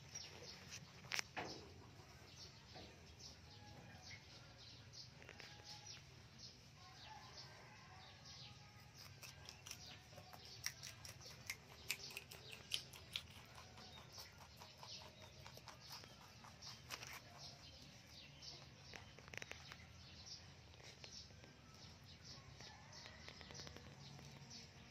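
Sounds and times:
rabbits crunching leaves: 8.8s - 24.9s.

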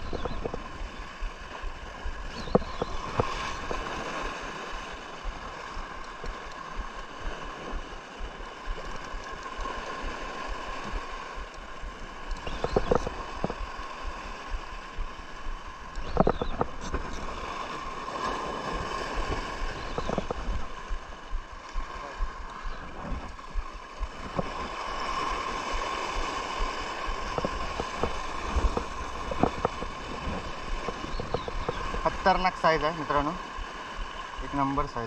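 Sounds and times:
sea water washing at shore: 0.0s - 35.0s.

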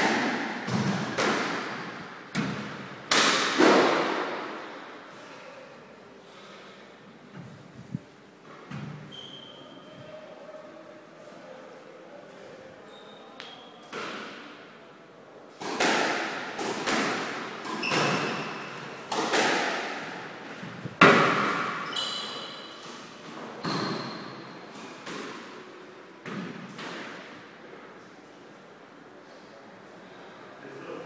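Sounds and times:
squash ball hits echoing: 0.0s - 4.8s, 15.6s - 27.3s
shoe squeak on wooden floor: 9.0s - 10.0s, 17.8s - 18.4s, 21.8s - 22.7s, 23.6s - 24.3s.

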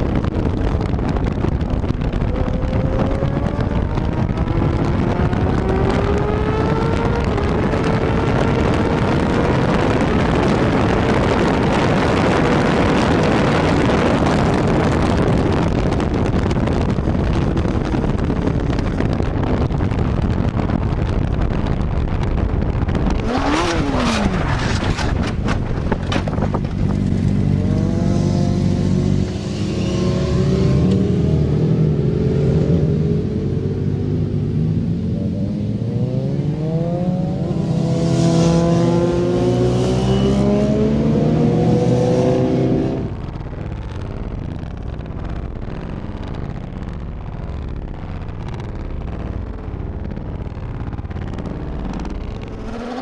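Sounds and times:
motorcycle engine revving: 0.0s - 15.6s, 23.0s - 43.3s, 51.1s - 53.0s
heavy wind noise: 0.0s - 53.0s
scraping and impacts of crash: 23.4s - 27.4s.

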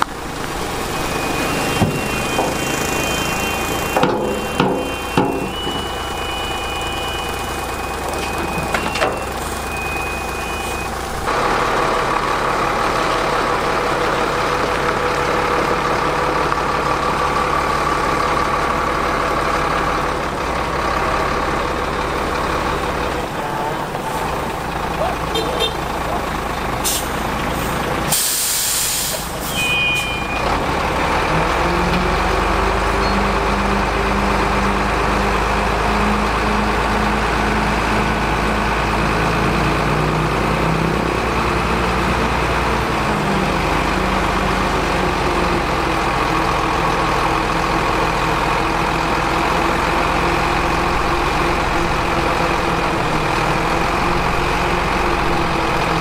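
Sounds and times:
diesel truck engine running: 0.0s - 56.0s
air brake hiss: 26.8s - 30.2s.

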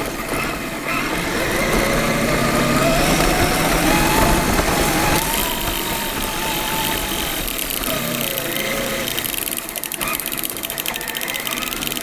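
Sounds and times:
electric motor and gear whine: 0.0s - 12.0s.

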